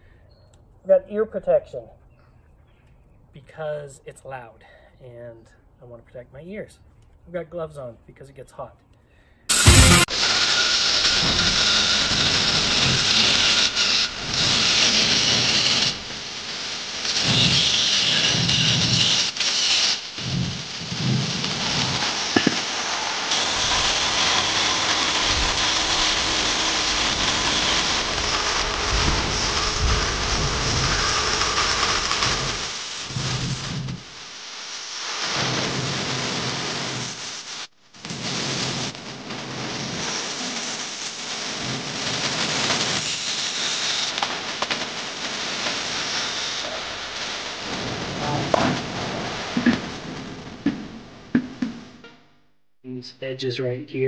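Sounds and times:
angle grinder on metal: 0:09.5 - 0:20.0, 0:22.3 - 0:32.8
high whine: 0:09.5 - 0:34.7, 0:45.8 - 0:53.0.

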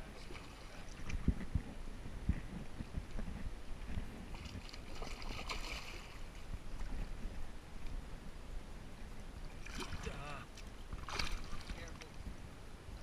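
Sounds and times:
wind rumbling on microphone: 0:00.0 - 0:13.0
water splashing from thrashing fish: 0:04.3 - 0:06.3, 0:09.6 - 0:12.0.

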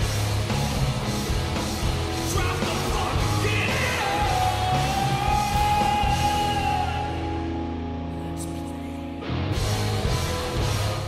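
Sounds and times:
rock song with heavy beat: 0:00.0 - 0:07.4, 0:09.3 - 0:11.0
singer yelling: 0:02.3 - 0:07.4.

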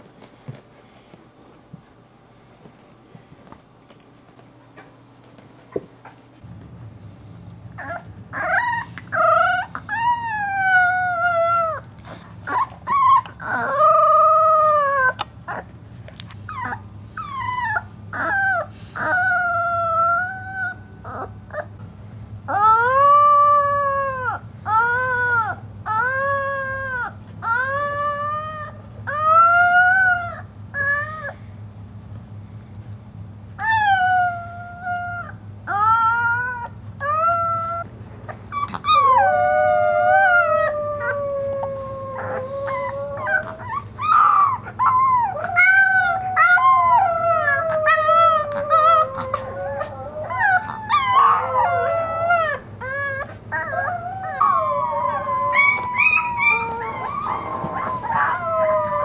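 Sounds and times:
puppy howling: 0:07.8 - 0:15.7, 0:16.5 - 0:21.7, 0:22.5 - 0:31.4, 0:33.6 - 0:37.9, 0:38.5 - 0:59.0.

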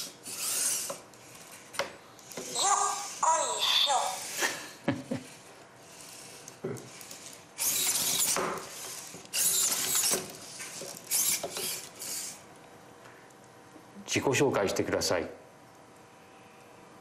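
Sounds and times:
robot servo motors whirring: 0:00.0 - 0:12.5.

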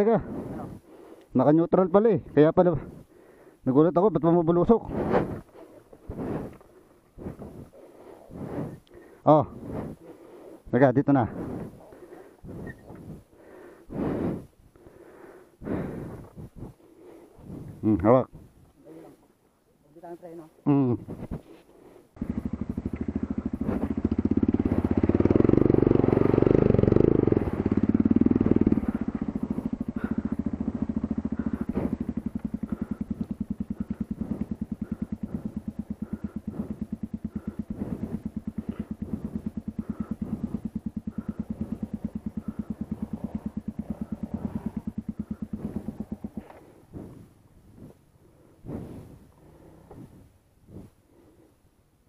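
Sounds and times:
motorcycle engine revving: 0:03.8 - 0:10.1, 0:22.2 - 0:50.9.

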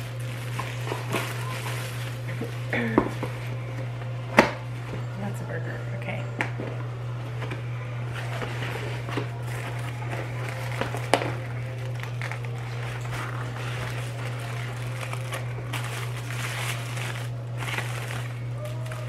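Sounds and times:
paper wrapper rustling: 0:00.0 - 0:03.4, 0:08.1 - 0:19.0.

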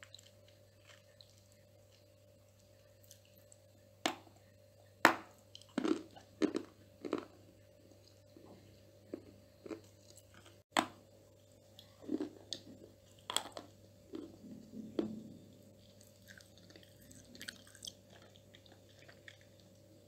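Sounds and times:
faint steady hum: 0:00.0 - 0:20.0
crunchy biting and chewing: 0:05.5 - 0:07.4, 0:15.8 - 0:19.6.

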